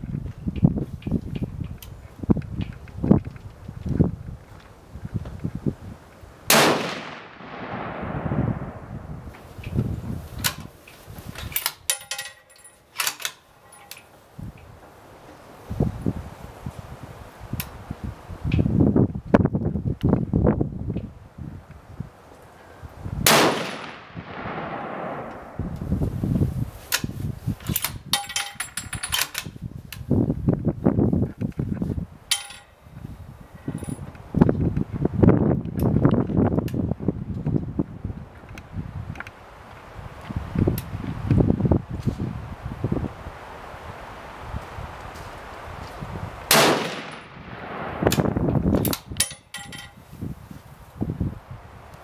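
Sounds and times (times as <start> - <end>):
rifle shot: 6.5 - 9.3, 23.2 - 25.9, 46.5 - 48.4
low rumbling: 6.5 - 10.3, 23.2 - 26.8, 46.3 - 48.9
rifle bolt clicking and clacking: 11.4 - 14.1, 27.6 - 29.5.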